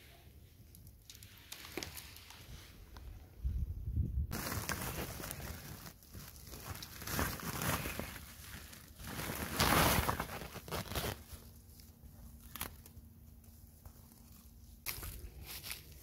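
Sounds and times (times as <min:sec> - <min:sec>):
plastic sack rustling: 0:04.3 - 0:16.0.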